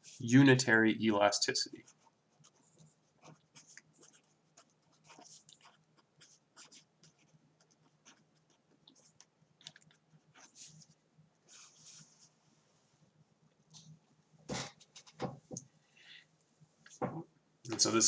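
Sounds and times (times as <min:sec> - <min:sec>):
pen scratching on paper: 0:01.8 - 0:09.3, 0:09.9 - 0:12.0.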